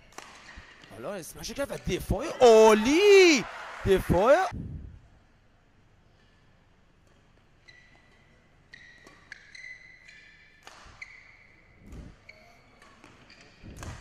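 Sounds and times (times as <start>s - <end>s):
shoes squeaking on court: 7.6s - 14.0s
racket striking shuttlecock: 9.0s - 11.2s.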